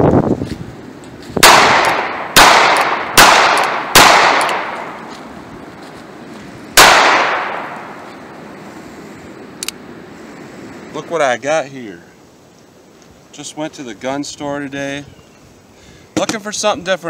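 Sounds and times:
revolver gunshots with echo: 1.4 - 5.0, 6.8 - 8.0.

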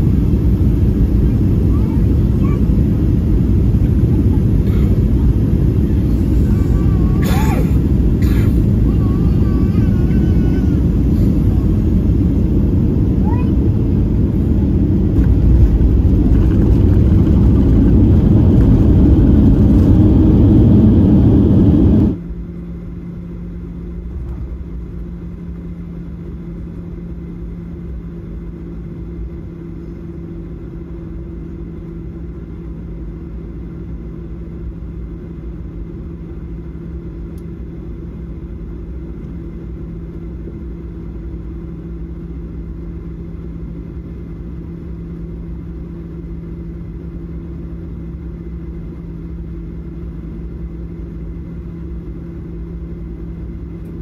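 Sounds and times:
jet engines roaring: 0.0 - 22.2
low droning hum: 0.0 - 54.0
rushing air: 14.2 - 22.2.

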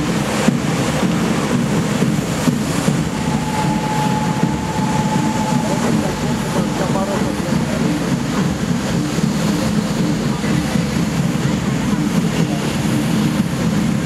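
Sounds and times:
fountain water jets rushing: 0.0 - 14.0
thin high tone: 2.9 - 8.5.

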